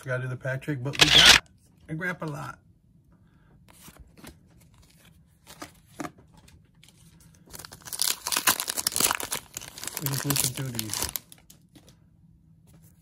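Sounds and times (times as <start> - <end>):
foil wrapper crinkling: 7.5 - 11.6.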